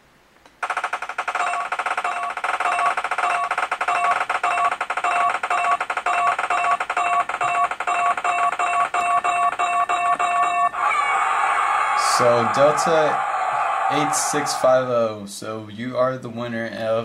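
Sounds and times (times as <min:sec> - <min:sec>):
electronic ticking beeps: 0:00.7 - 0:10.8.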